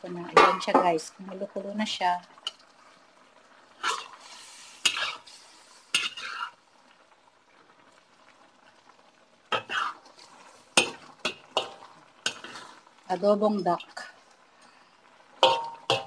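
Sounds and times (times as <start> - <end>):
sauce bubbling faintly: 0.6 - 16.0
metal spatula scraping a wok: 3.8 - 6.6, 9.5 - 12.8, 15.4 - 16.0.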